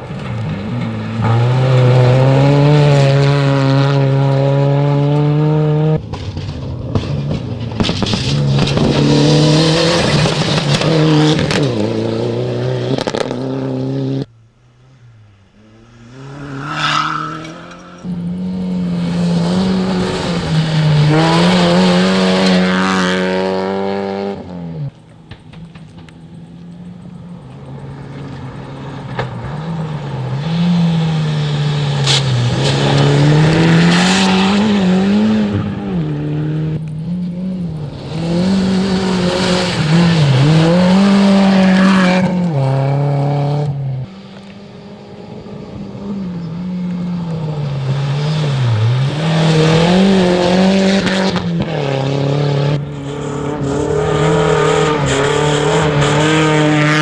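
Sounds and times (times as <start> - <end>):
rally car engines revving: 0.0 - 57.0
gravel spraying from tyres: 31.0 - 35.7.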